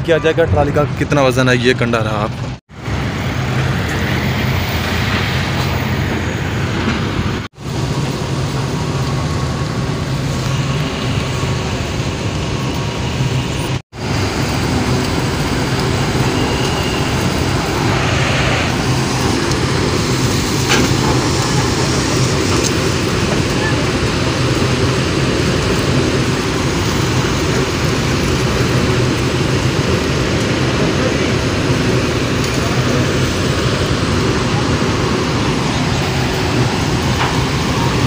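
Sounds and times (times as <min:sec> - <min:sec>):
tractor diesel engines: 0:00.0 - 0:38.0
low hum: 0:02.3 - 0:30.6
mill machinery running: 0:02.4 - 0:38.0.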